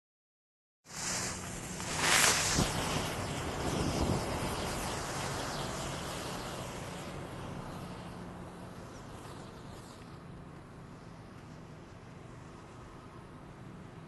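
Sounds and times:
firework fountain hissing: 0:00.9 - 0:10.3
sharp firework pops: 0:01.2 - 0:04.2.

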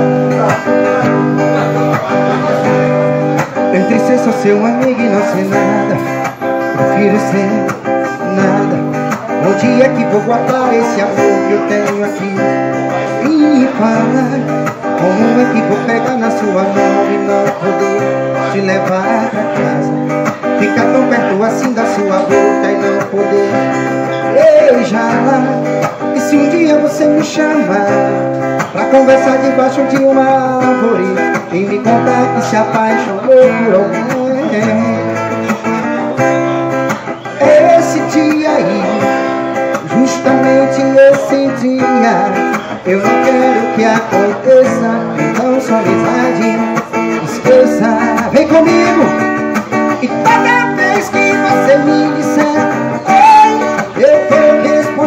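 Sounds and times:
acoustic guitar strummed: 0:00.0 - 0:55.0.

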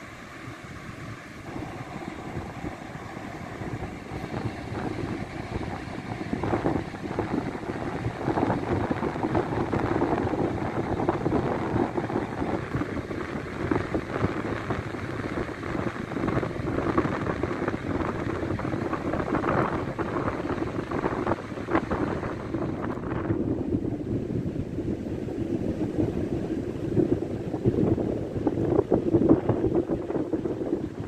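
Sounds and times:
surf rushing: 0:00.0 - 0:23.8
wind buffeting microphone: 0:00.0 - 0:31.0.

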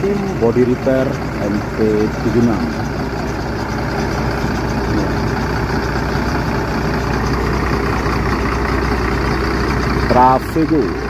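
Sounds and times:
bus diesel engine running: 0:00.0 - 0:11.0.

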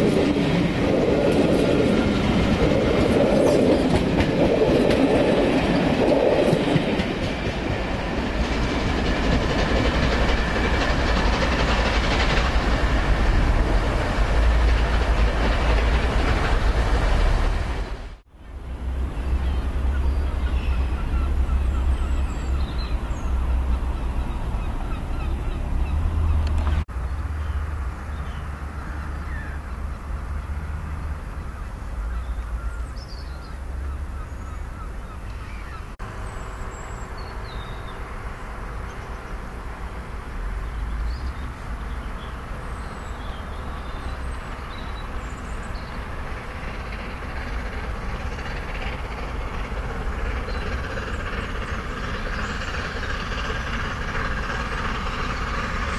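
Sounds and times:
steam locomotive exhaust: 0:43.0 - 0:55.9.

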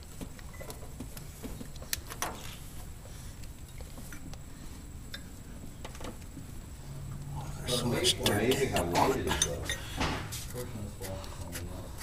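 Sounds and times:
low shop hum: 0:00.0 - 0:12.0.

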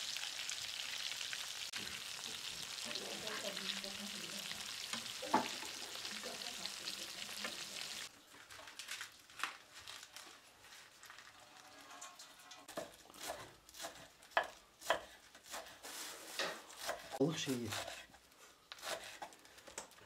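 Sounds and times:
fish frying in hot oil: 0:00.0 - 0:08.1
lettuce rustling: 0:08.2 - 0:11.8
knife chopping on wooden board: 0:12.7 - 0:15.8, 0:16.8 - 0:18.0, 0:18.8 - 0:19.3.

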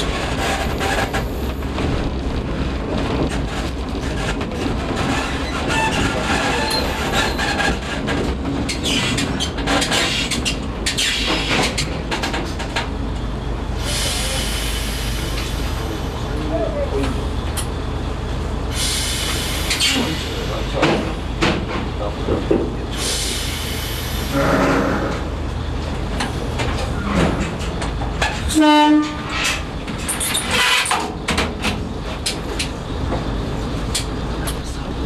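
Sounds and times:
diesel railcar engine idling: 0:00.0 - 0:35.0
compressed air hissing: 0:13.8 - 0:15.9, 0:18.7 - 0:20.3, 0:23.0 - 0:24.5
train horn blast: 0:24.3 - 0:25.3, 0:28.5 - 0:29.3.

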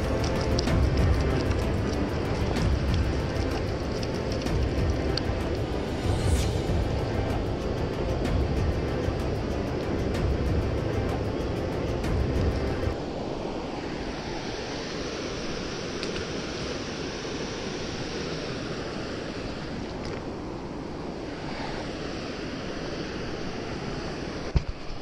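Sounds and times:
background music: 0:00.0 - 0:13.0
water rushing down a concrete canal: 0:00.0 - 0:21.5.

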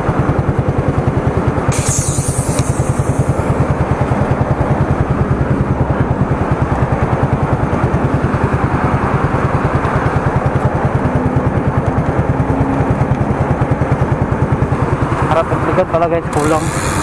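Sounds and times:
motor running with rapid throb: 0:01.7 - 0:05.9, 0:13.6 - 0:17.0.

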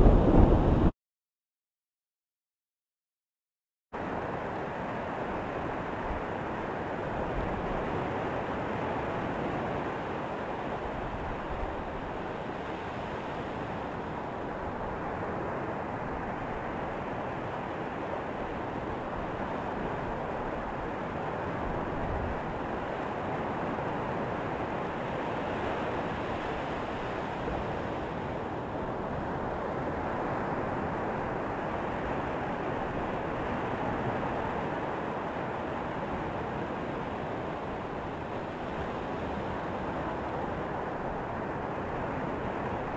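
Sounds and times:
surf breaking on beach: 0:00.0 - 0:00.9
wind on microphone: 0:00.0 - 0:00.9.

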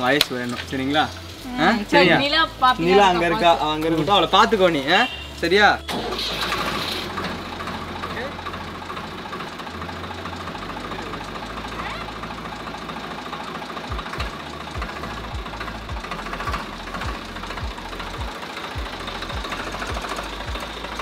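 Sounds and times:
diesel tractor engine idling: 0:00.0 - 0:21.0
regular low thump: 0:13.9 - 0:20.7.

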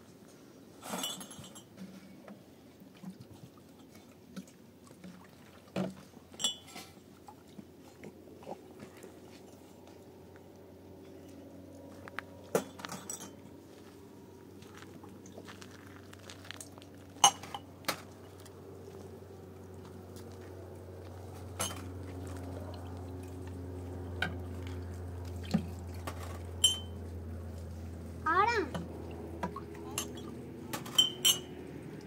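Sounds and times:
dishes and utensils clinking: 0:00.8 - 0:01.8, 0:06.4 - 0:07.0, 0:12.6 - 0:13.4, 0:26.6 - 0:27.0, 0:29.9 - 0:31.6
steady low hum: 0:06.2 - 0:32.0.

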